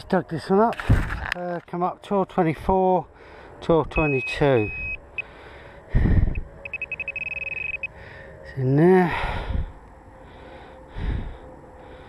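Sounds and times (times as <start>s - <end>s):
pinpointer rapid high beeps: 4.0s - 5.3s, 6.6s - 7.9s.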